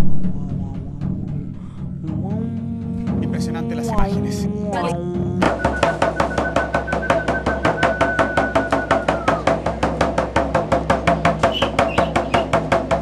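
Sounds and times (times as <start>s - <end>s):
steady low notes: 0.0s - 5.6s
fast drum beat: 5.4s - 13.0s.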